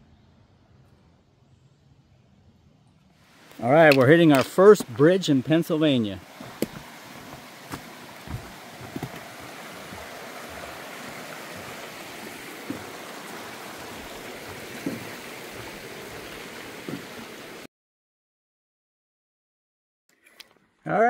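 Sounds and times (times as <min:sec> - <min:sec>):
stream running: 0:03.2 - 0:17.7
soft thumps: 0:06.4 - 0:09.3.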